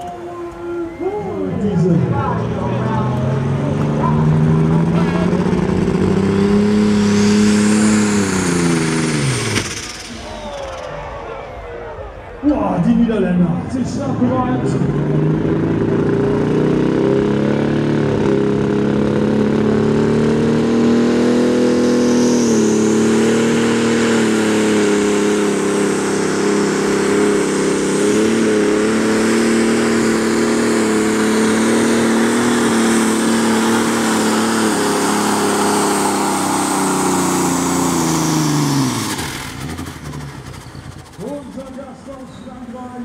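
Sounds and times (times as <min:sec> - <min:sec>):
diesel engine at full throttle: 0:00.0 - 0:43.0.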